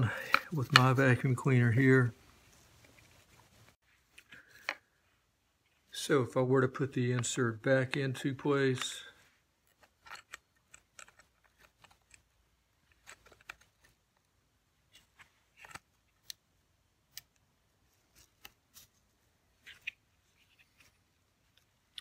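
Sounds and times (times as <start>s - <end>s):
faint clicks and scrapes: 2.4s - 4.9s, 8.8s - 14.3s, 17.9s - 22.0s.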